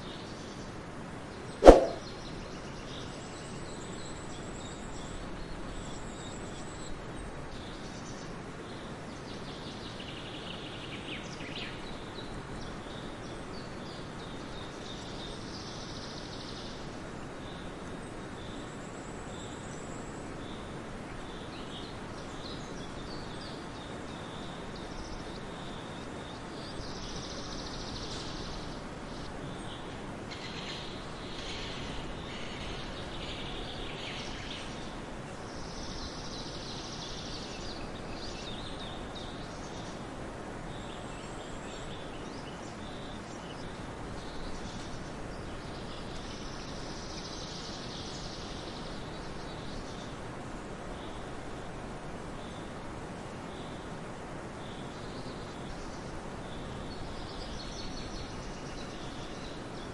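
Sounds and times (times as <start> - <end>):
faint bird chirps: 1.6 - 2.0
steady background hiss: 5.6 - 59.9.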